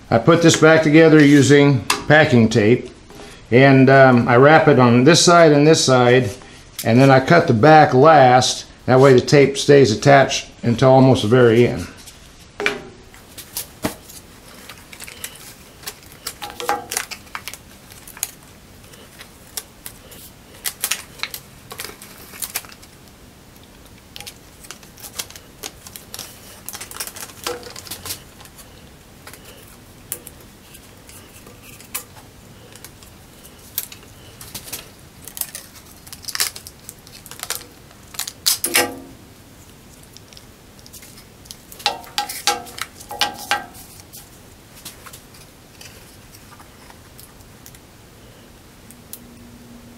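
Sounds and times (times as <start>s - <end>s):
packing tape pulled from roll: 13.2s - 38.9s.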